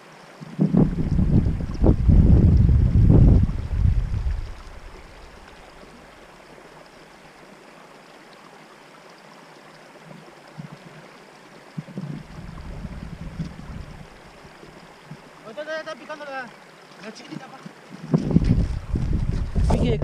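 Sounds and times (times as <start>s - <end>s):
wind hiss: 0.0s - 8.2s, 9.1s - 20.0s
small waves lapping: 0.0s - 20.0s
wind buffeting microphone: 0.4s - 5.5s, 11.8s - 15.2s, 18.0s - 20.0s.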